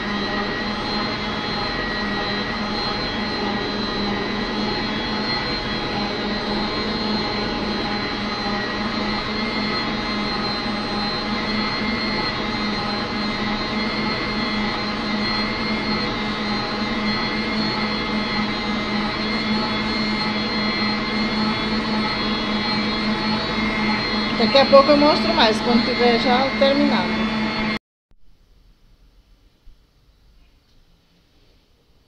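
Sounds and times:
stand mixer running: 0.0s - 27.8s.

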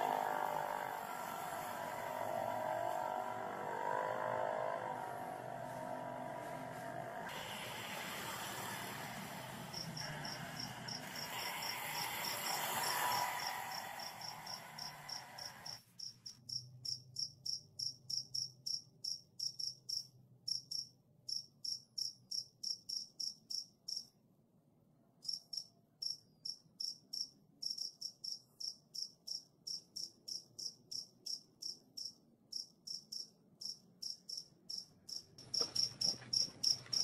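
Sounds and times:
cricket chirping: 9.7s - 24.1s, 25.2s - 37.0s.

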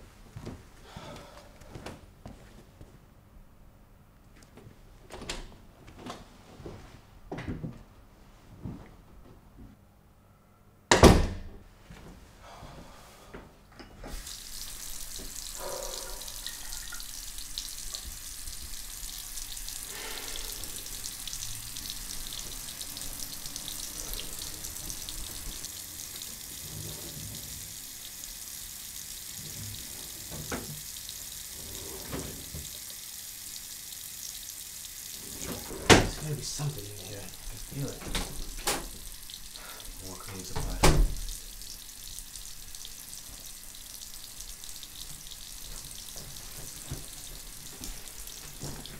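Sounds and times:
faucet water splashing into sink: 14.1s - 48.9s.

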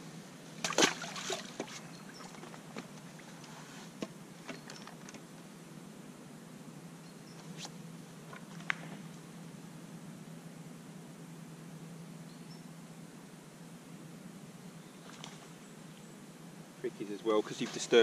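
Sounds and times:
steady low hum: 0.0s - 18.0s
fish splashing in water: 0.6s - 2.6s.

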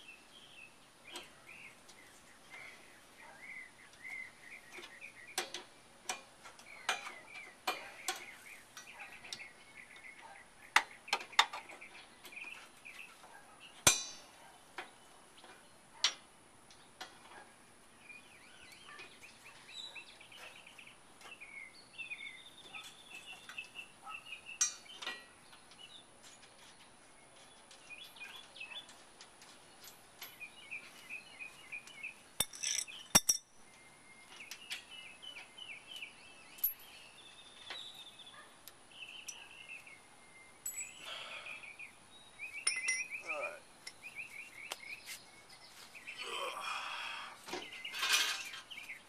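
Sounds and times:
birds chirping and trilling: 0.0s - 49.0s
wrench clinking on metal: 13.9s - 14.3s, 32.4s - 33.6s, 36.6s - 36.9s, 40.6s - 41.0s, 42.6s - 43.3s.

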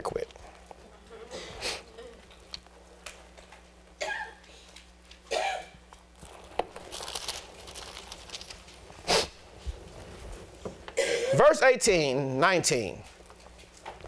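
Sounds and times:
thin pages rustling: 6.2s - 8.9s.

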